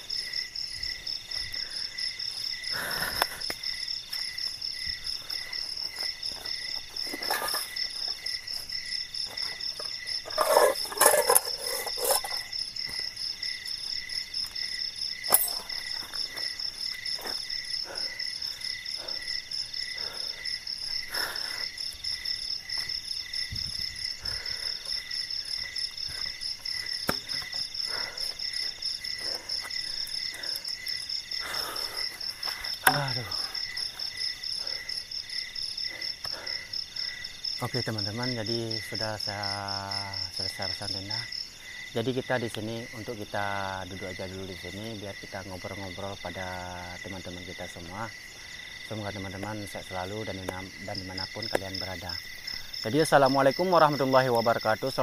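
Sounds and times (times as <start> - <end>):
camping gear rustling and knocking: 0.0 - 36.3
crickets chirping: 0.0 - 55.0.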